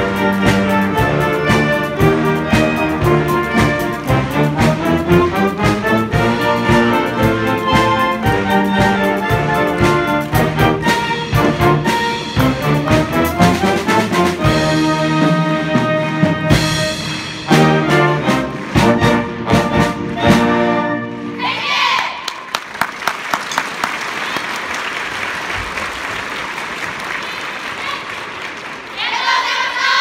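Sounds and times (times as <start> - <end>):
wind band playing: 0.0 - 22.2
applause: 22.2 - 29.0.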